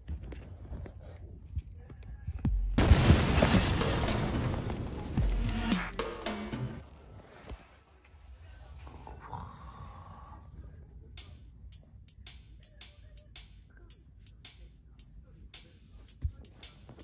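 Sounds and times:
background music: 2.8s - 6.8s, 11.2s - 17.0s.

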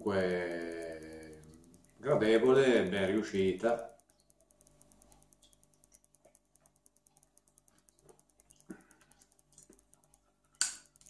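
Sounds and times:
faint soft clicks: 3.3s - 11.0s.

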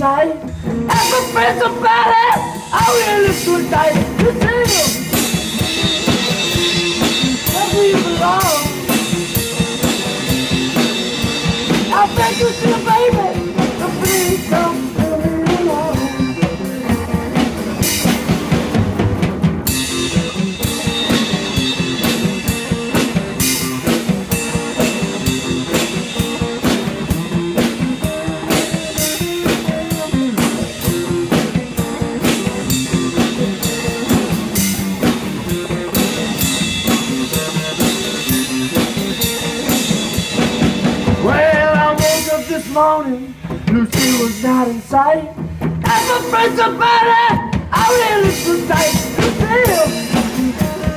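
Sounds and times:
drum kit beat: 0.0s - 50.9s
electric guitar through an amp: 0.0s - 50.9s.

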